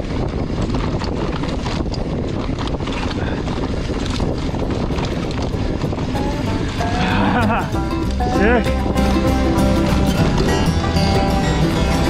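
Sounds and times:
bike clicks and rattles: 0.0s - 6.8s
wind rushing over microphone: 0.0s - 12.0s.

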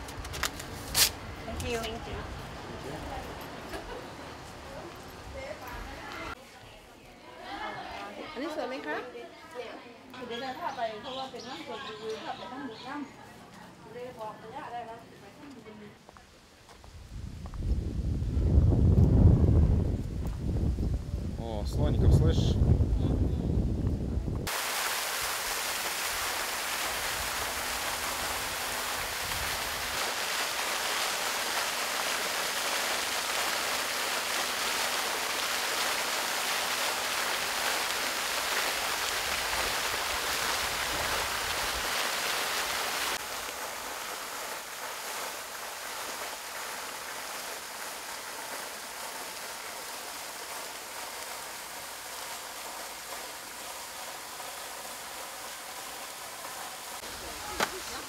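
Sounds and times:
rush of running water: 24.4s - 58.0s.

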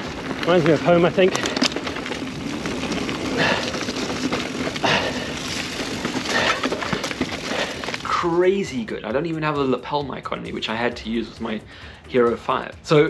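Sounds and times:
dry leaves crunching: 0.0s - 8.8s
bike rattling over bumps: 0.0s - 11.4s
bike tyres on dirt trail: 0.0s - 13.0s.

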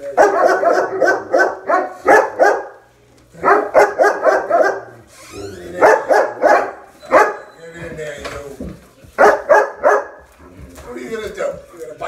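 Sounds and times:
dogs barking: 0.0s - 5.1s, 5.7s - 7.6s, 9.2s - 10.4s.

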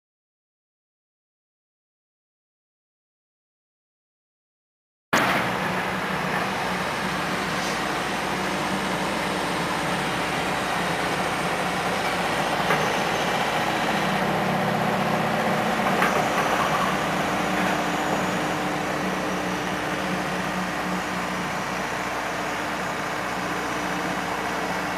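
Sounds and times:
diesel engine running: 5.2s - 24.9s.

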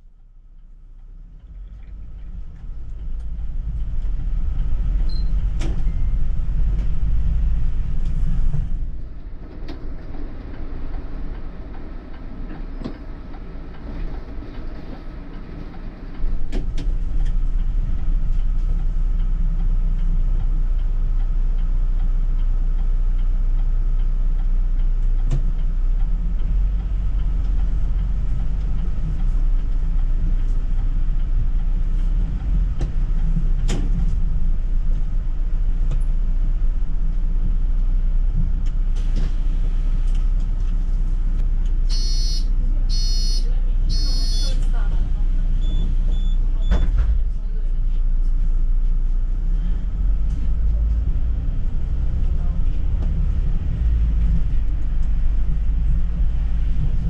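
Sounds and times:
bus engine rumble: 0.0s - 57.0s
road noise: 0.0s - 57.0s.

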